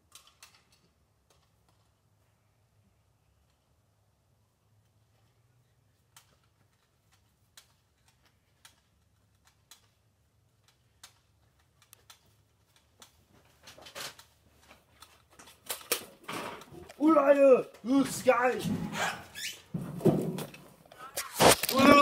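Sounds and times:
faint clicks and taps: 0:04.8 - 0:17.9.

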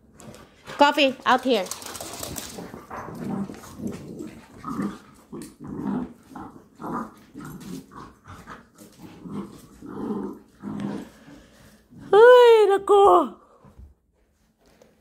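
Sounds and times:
puppies growling: 0:01.6 - 0:12.2.

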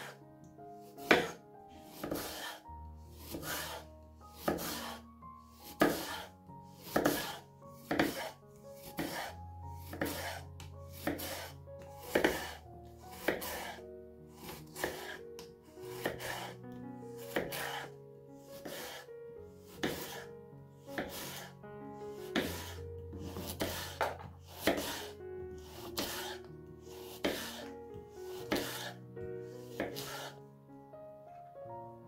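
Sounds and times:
soft background music: 0:00.0 - 0:32.0
knife cutting on a cutting board: 0:00.9 - 0:05.0, 0:05.6 - 0:13.8, 0:14.4 - 0:16.6, 0:17.2 - 0:18.0, 0:18.6 - 0:19.1, 0:19.7 - 0:20.3, 0:20.9 - 0:21.5, 0:22.2 - 0:27.7, 0:28.3 - 0:29.0, 0:29.6 - 0:30.4.

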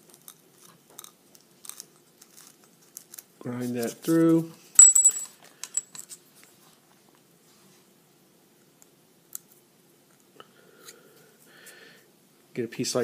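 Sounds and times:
soft scraping hiss: 0:01.5 - 0:08.0.

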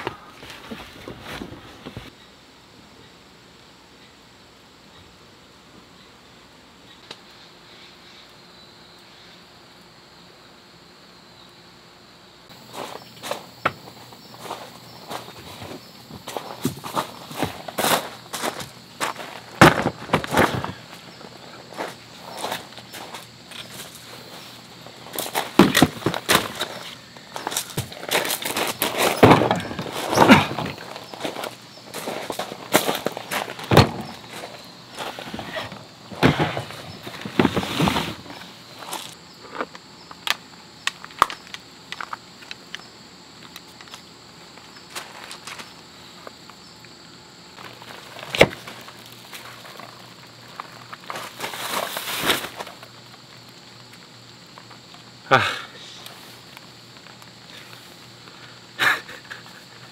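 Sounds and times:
rustling: 0:00.0 - 0:02.1, 0:12.6 - 0:39.7, 0:47.6 - 0:53.5
insect buzz: 0:00.0 - 0:59.9
objects knocking and thudding: 0:13.6 - 0:20.8, 0:25.1 - 0:38.4
heavy thump: 0:19.6 - 0:20.8, 0:29.0 - 0:30.9, 0:33.6 - 0:38.3.

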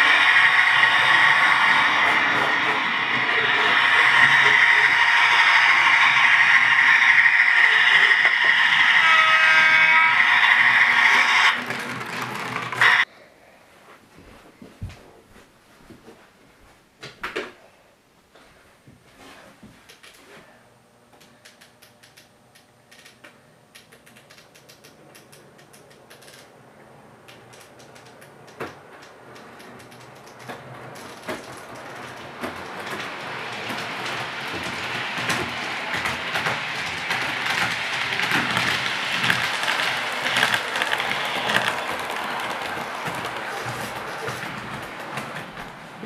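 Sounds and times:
model train wheels rattling: 0:00.0 - 0:13.1, 0:23.8 - 0:26.5, 0:27.3 - 0:46.0.

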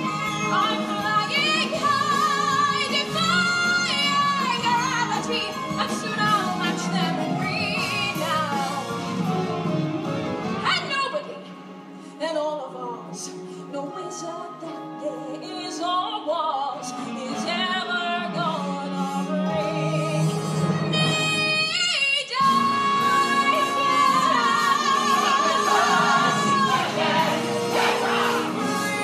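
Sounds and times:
woman singing: 0:00.0 - 0:08.9, 0:12.2 - 0:27.3
orchestral accompaniment: 0:22.4 - 0:29.0.

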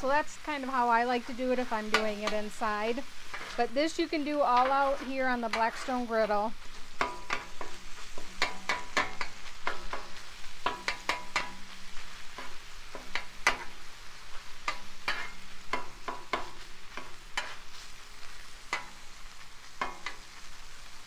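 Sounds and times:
meat sizzling on a griddle: 0:00.0 - 0:21.0
metal utensil scraping steel: 0:00.5 - 0:13.8, 0:14.6 - 0:17.9.

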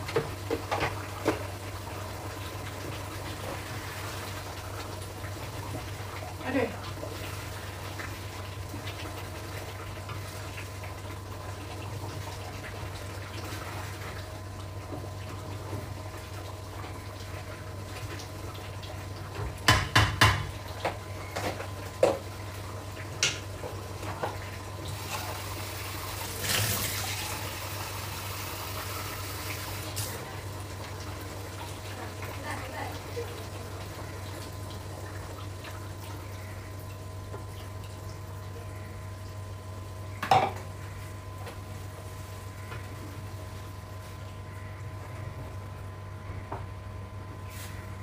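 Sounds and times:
running water splash: 0:24.8 - 0:30.4.

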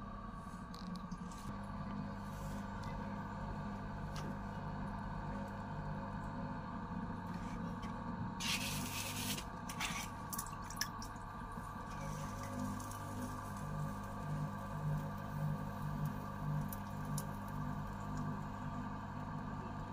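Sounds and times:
potter's wheel low hum: 0:00.0 - 0:19.9.

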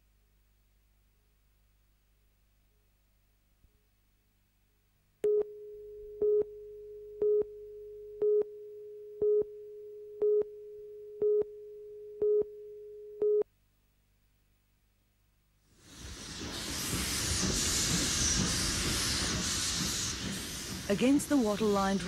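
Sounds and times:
steady single tone: 0:05.2 - 0:13.5.

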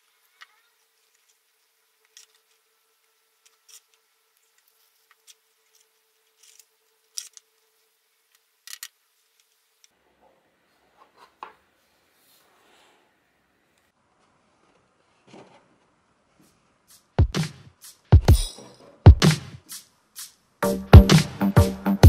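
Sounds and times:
paper rustling and clicking: 0:00.3 - 0:02.6, 0:03.4 - 0:07.5.

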